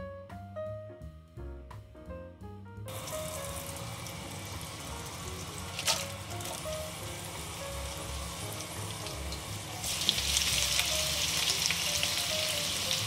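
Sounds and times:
oil sizzling in a wok: 0:02.9 - 0:13.0.

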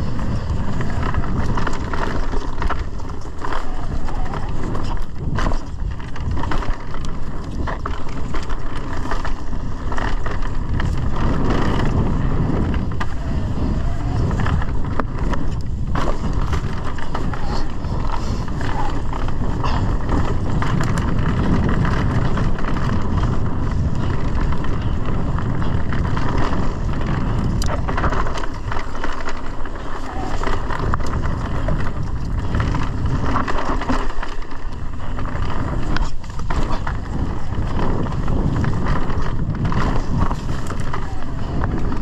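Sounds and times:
bike clicks and rattles: 0:00.0 - 0:42.0
tyres rumbling on dirt: 0:00.0 - 0:42.0.

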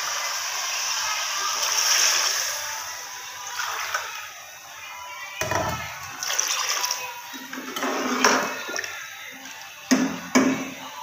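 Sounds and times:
water splashing into hot pot: 0:05.4 - 0:10.2.

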